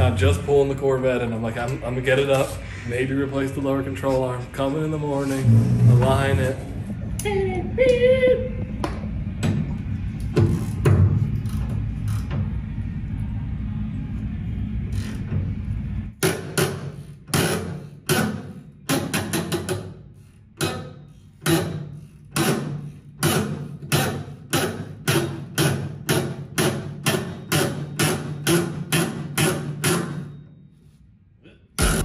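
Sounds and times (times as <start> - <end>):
low rumble: 0.0 - 16.2.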